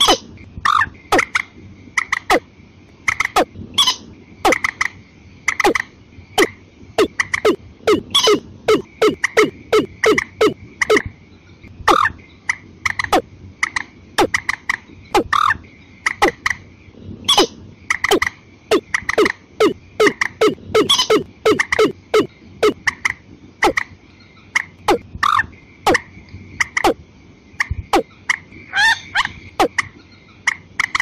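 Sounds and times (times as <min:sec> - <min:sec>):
water birds calling: 0:03.1 - 0:16.6, 0:17.3 - 0:27.0.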